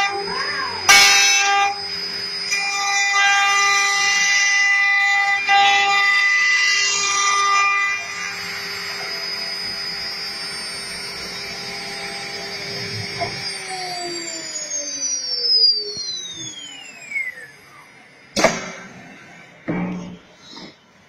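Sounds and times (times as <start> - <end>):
drilling spindle whining and spinning down: 0.0 - 20.9.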